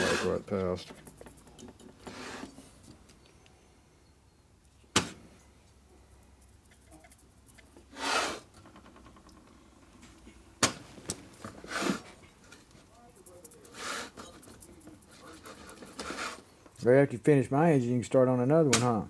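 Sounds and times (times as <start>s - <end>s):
hand rubbing metal part: 0.0s - 3.0s, 11.5s - 16.5s.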